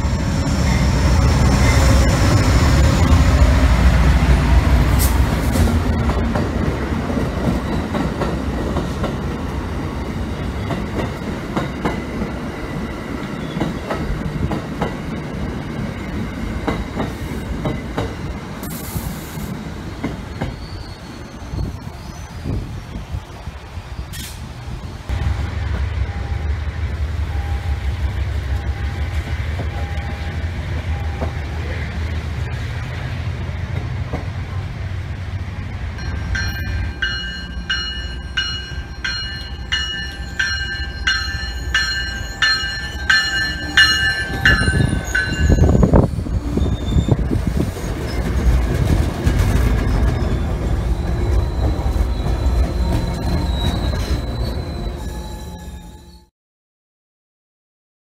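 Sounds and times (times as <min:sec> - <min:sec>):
train wheels rumbling and clattering: 0:00.0 - 0:56.0
train rumble: 0:00.0 - 0:56.3
faint high wheel squeal: 0:20.2 - 0:22.5, 0:42.9 - 0:47.2, 0:49.8 - 0:56.3
train bell ringing: 0:27.3 - 0:27.9, 0:28.6 - 0:31.4, 0:36.0 - 0:47.1.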